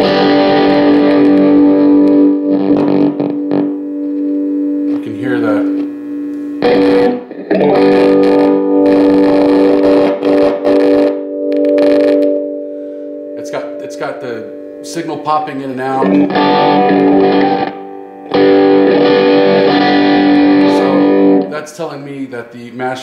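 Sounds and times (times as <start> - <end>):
electric guitar chord: 0.0 - 21.5
amp signal popping: 0.1 - 12.4.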